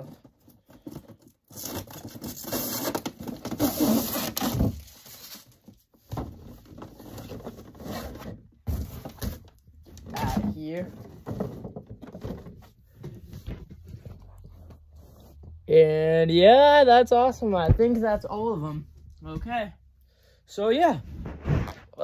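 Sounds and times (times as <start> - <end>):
packaging rustling and scraping: 0.0 - 9.6.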